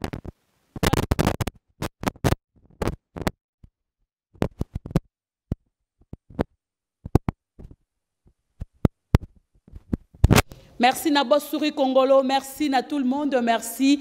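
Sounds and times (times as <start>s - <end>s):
cloth rubbing on microphone: 0.0s - 3.3s, 4.4s - 5.1s, 6.2s - 10.5s
microphone handling noise: 0.0s - 3.4s, 4.3s - 10.7s.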